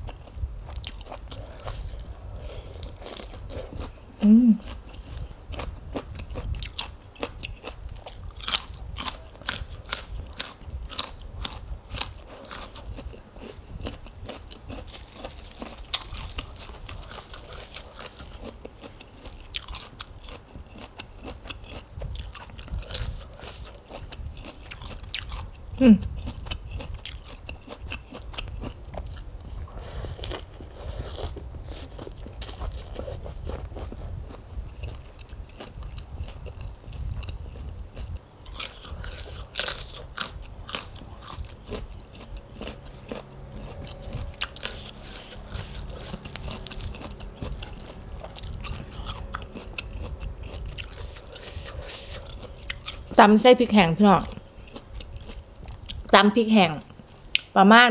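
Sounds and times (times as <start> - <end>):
person chewing and crunching: 0.0 - 57.6
person humming: 4.2 - 4.7.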